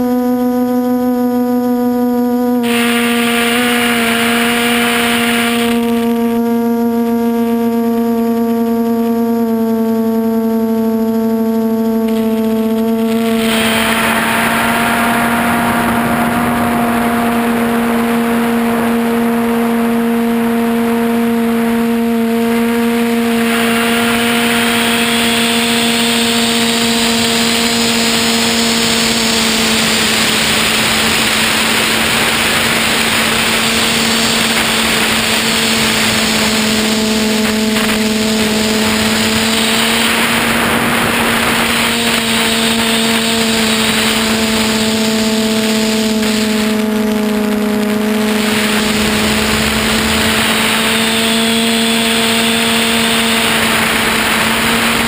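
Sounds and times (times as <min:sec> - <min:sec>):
drone motors humming: 0:00.0 - 0:55.0
hiss: 0:02.6 - 0:06.1, 0:13.0 - 0:18.8, 0:22.8 - 0:55.0.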